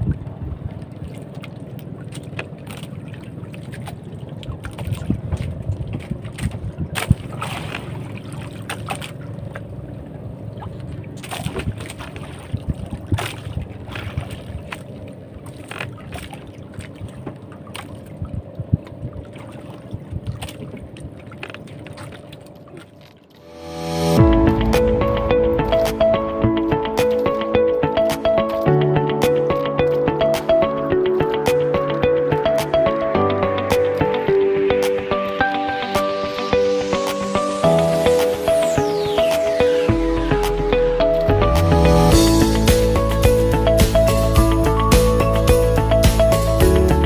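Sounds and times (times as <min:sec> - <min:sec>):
wind noise: 0:00.0 - 0:01.1, 0:04.6 - 0:07.4, 0:11.5 - 0:14.7, 0:18.1 - 0:21.2
water noise: 0:00.0 - 0:47.0
boat engine running: 0:04.6 - 0:22.8, 0:24.2 - 0:47.0.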